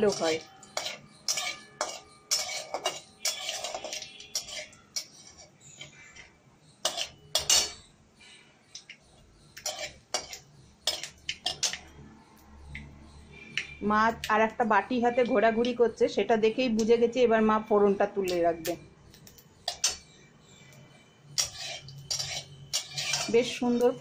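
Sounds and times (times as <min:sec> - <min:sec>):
metal spatula scraping metal pan: 0:00.0 - 0:08.8, 0:09.4 - 0:11.9, 0:19.6 - 0:24.0.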